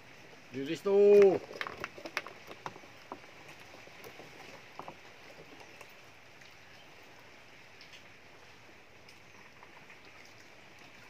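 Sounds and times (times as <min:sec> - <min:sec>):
outdoor hiss: 0:00.0 - 0:01.4.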